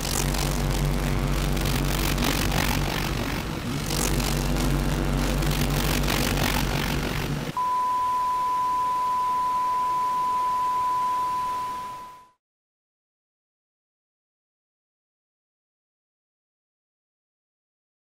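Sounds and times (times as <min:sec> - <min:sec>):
crackling rumbling noise: 0:00.0 - 0:07.6
broadcast test tone: 0:07.6 - 0:12.4.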